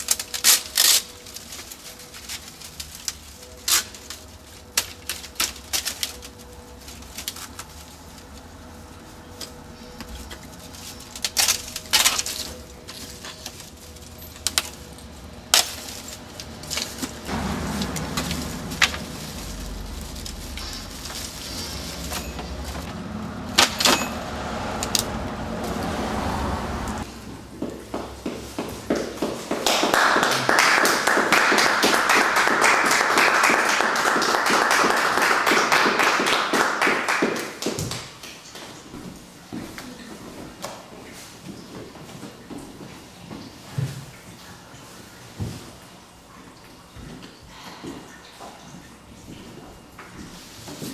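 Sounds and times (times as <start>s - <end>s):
debris knocking and clinking: 23.6s - 24.9s.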